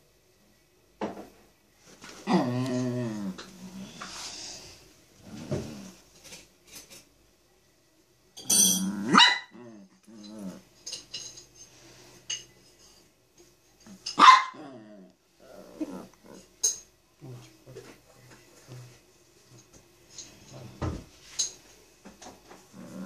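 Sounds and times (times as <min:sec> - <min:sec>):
dog grumbling: 0:02.2 - 0:04.0, 0:08.8 - 0:10.6, 0:14.6 - 0:16.5, 0:22.7 - 0:23.0
small dog barking: 0:09.0 - 0:09.6, 0:14.2 - 0:14.7.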